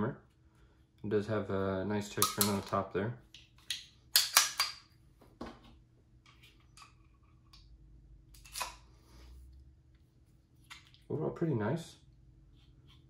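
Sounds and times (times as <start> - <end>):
pistol metal clicks: 3.7 - 4.8.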